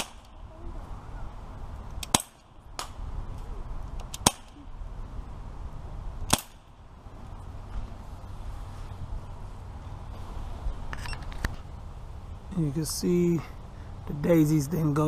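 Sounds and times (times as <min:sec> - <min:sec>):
bb pistol shots: 0:00.0 - 0:00.4, 0:02.0 - 0:03.0, 0:04.0 - 0:04.6, 0:06.3 - 0:06.7.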